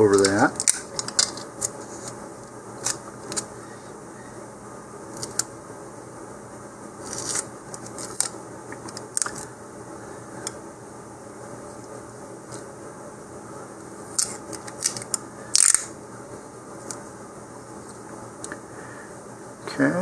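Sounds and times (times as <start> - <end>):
adhesive tape ripping and crinkling: 0.0 - 1.8, 7.0 - 8.3, 14.1 - 15.9
faint background hum: 0.0 - 20.0.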